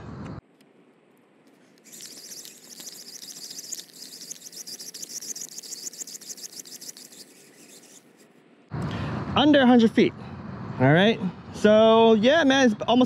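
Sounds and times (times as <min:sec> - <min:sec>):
fishing reel whirring: 0:01.8 - 0:08.3.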